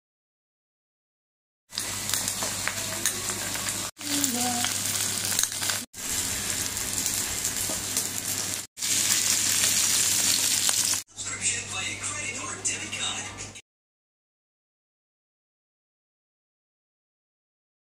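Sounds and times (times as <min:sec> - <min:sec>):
fish sizzling on a hotplate: 0:01.7 - 0:11.0.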